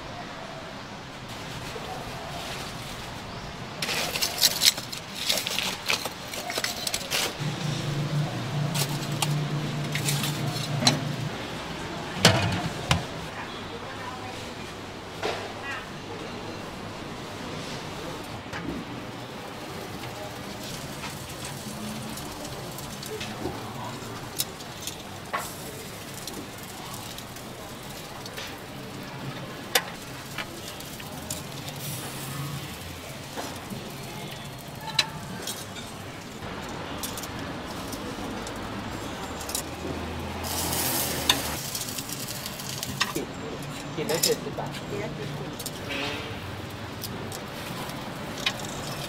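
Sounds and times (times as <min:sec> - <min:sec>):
utensils clinking: 0:03.8 - 0:08.0, 0:08.6 - 0:11.4, 0:12.1 - 0:13.2, 0:20.1 - 0:49.0
pork sizzling: 0:03.8 - 0:13.3, 0:19.2 - 0:49.0.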